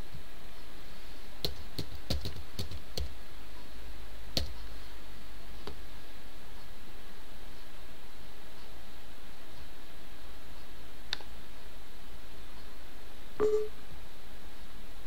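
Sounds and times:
steady low hum: 0.0s - 15.0s
keyboard typing: 1.4s - 3.1s.

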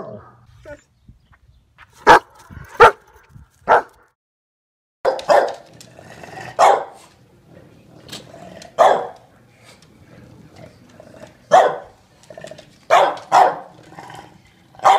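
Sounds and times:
dog barking sharply: 2.0s - 3.1s, 3.7s - 4.0s, 5.1s - 5.6s, 6.6s - 7.0s, 8.8s - 9.2s, 11.5s - 11.9s, 12.9s - 13.7s
dog gruff barks: 2.0s - 4.1s, 5.1s - 5.7s, 6.4s - 7.1s, 8.7s - 9.2s, 11.5s - 12.0s, 12.9s - 13.8s.

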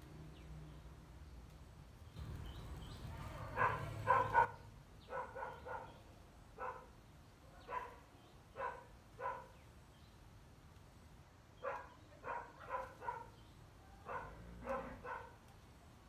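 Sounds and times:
dog barking: 3.1s - 6.0s, 6.6s - 6.9s, 7.6s - 9.6s, 11.6s - 13.4s, 14.0s - 15.4s.

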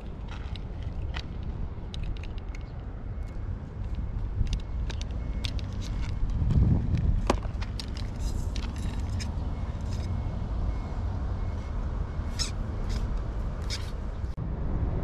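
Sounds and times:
road traffic rumble: 0.0s - 15.0s
fishing rod clicks and ticks: 0.2s - 6.4s.

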